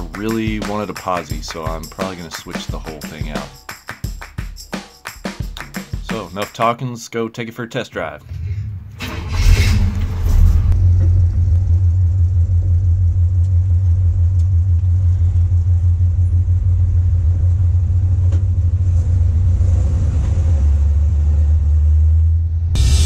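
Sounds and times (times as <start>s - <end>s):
deep truck exhaust note: 8.2s - 23.0s.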